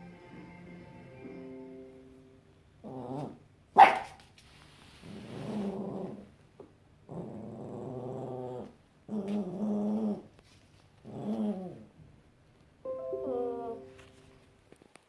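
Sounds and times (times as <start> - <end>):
puppy growling: 2.8 - 3.4, 5.0 - 6.4, 7.0 - 10.3, 11.0 - 11.9.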